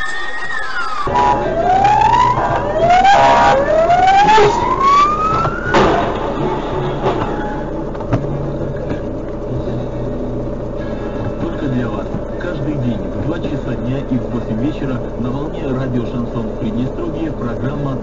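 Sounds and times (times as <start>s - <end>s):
police siren whooping: 0.0s - 8.0s
car engine hum: 0.0s - 18.0s.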